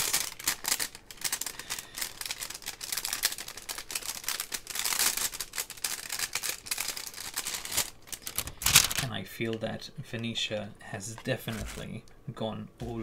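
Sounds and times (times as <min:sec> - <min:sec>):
plastic packaging crinkling: 0:00.0 - 0:09.2, 0:11.1 - 0:12.1.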